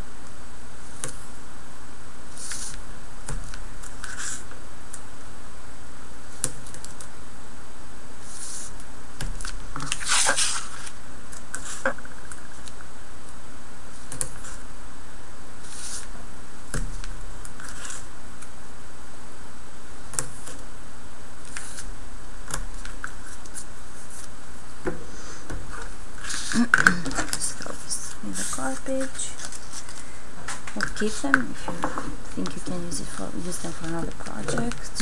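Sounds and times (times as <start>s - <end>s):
paper rustling and scratching: 2.3s - 2.8s, 3.4s - 4.6s, 8.2s - 12.8s, 15.6s - 16.1s, 16.9s - 18.1s, 21.4s - 21.9s, 22.6s - 24.4s, 25.7s - 35.0s.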